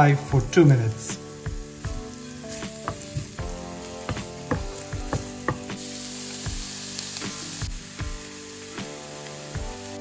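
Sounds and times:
onion sizzling in oil: 0:00.0 - 0:10.0
wooden spatula scraping pan: 0:02.6 - 0:03.4.

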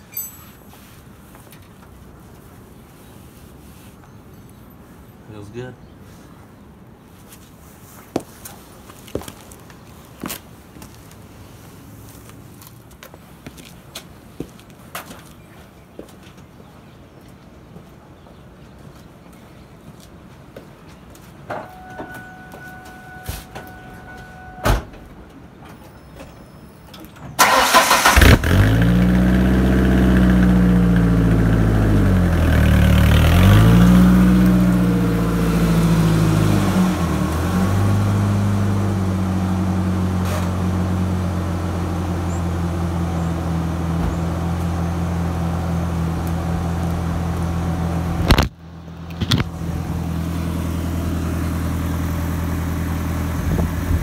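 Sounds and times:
pickup engine cranking: 0:27.4 - 0:30.5
engine revving and idling: 0:27.4 - 0:48.3.

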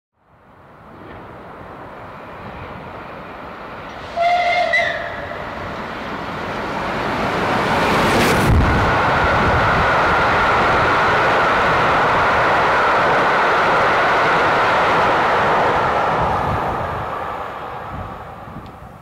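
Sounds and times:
steam locomotive running: 0:03.6 - 0:19.0
locomotive whistle: 0:04.0 - 0:05.4.

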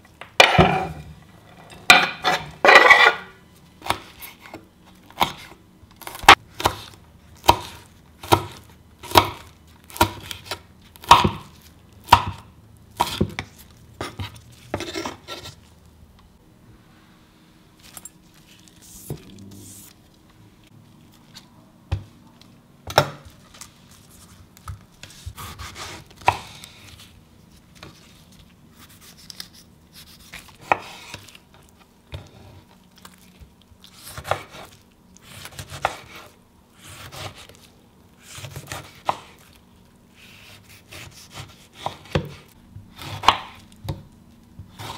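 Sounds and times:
knife chopping on wooden board: 0:06.1 - 0:11.5, 0:12.1 - 0:12.4, 0:40.4 - 0:42.4, 0:43.0 - 0:44.0.

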